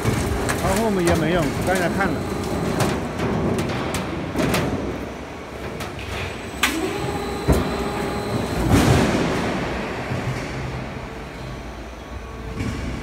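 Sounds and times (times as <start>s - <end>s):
machine whine: 0.0s - 3.2s, 6.1s - 13.0s
machine mechanical rumble: 0.0s - 13.0s.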